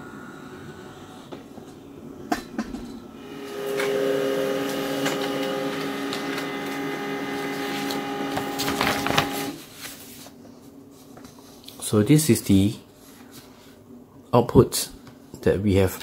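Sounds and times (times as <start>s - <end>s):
laser printer motors humming: 3.2s - 9.6s
light clicks of paper feeding: 7.5s - 9.5s.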